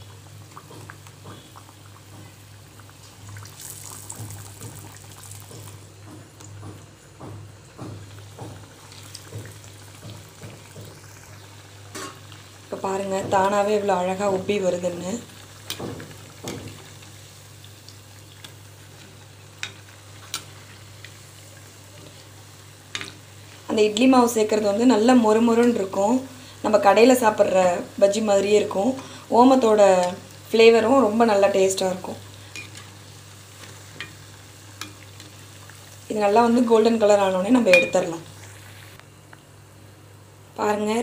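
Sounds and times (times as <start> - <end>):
deep-frying sizzle in hot oil: 0.0 - 41.0.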